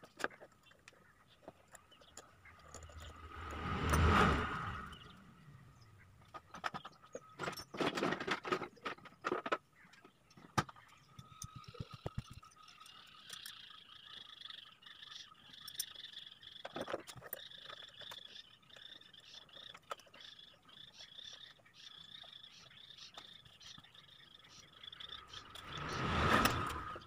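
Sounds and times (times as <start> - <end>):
sharp clicks and light knocks: 6.2 - 13.6.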